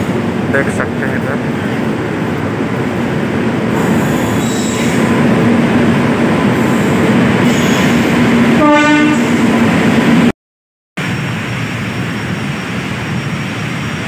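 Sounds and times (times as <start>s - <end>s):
train coaches and wheels rumbling: 0.0s - 10.3s, 11.0s - 14.0s
train horn blast: 8.6s - 9.4s.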